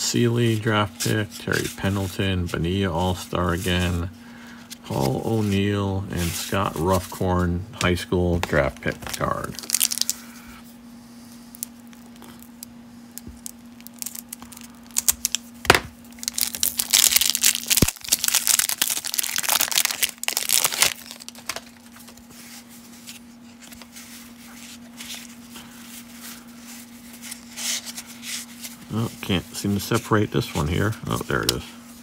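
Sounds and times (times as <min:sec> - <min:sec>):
rustling of cards: 0:00.2 - 0:10.5, 0:16.2 - 0:32.0
cellophane wrapper tearing and crinkling: 0:08.7 - 0:10.2, 0:11.5 - 0:15.5, 0:16.1 - 0:22.2.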